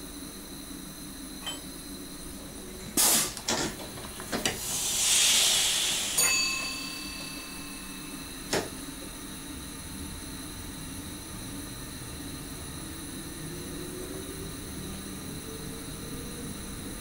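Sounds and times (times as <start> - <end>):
faint steady tone: 1.4 - 2.0
compressed air hissing: 2.9 - 3.6, 4.3 - 8.5.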